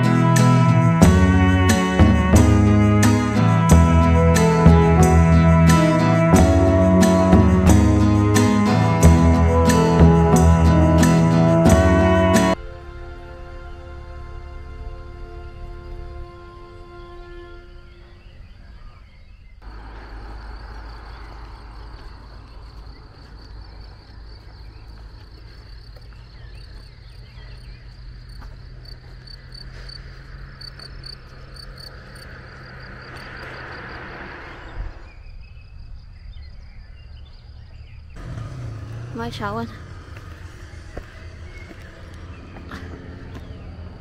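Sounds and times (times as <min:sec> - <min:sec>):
insects chirping: 0:12.0 - 0:44.0
rushing noise: 0:30.2 - 0:36.2.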